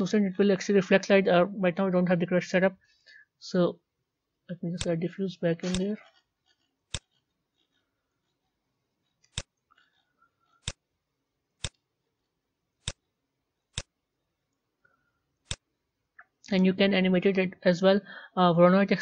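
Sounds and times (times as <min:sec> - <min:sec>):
computer mouse clicks: 0:05.6 - 0:07.9, 0:09.1 - 0:10.8, 0:12.8 - 0:13.1, 0:13.7 - 0:13.9, 0:15.4 - 0:16.6.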